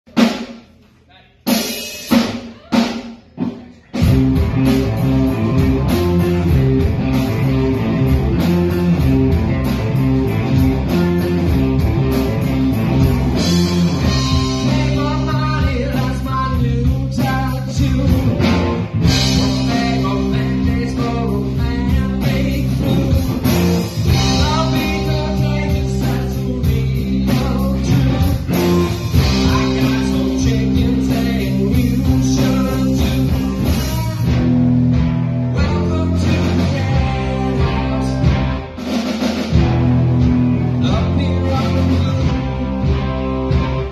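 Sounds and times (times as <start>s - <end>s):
drum kit: 0.0s - 43.9s
electric guitars: 3.4s - 43.9s
person singing: 13.4s - 34.3s, 35.5s - 38.6s, 40.7s - 43.6s.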